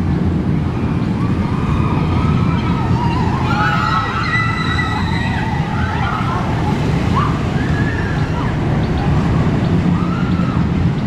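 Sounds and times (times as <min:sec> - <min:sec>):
roller coaster rumble: 0:00.0 - 0:11.0
high wavering wails: 0:01.1 - 0:09.1.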